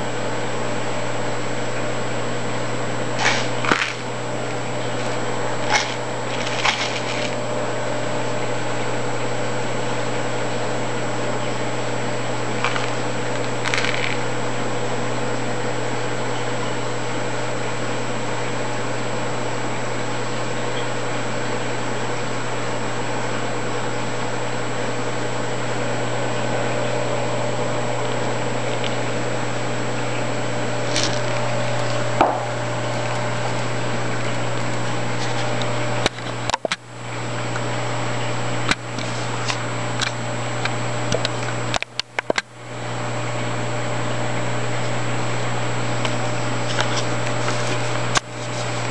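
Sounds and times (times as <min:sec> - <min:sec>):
aquarium pumps humming: 0:00.0 - 0:48.9.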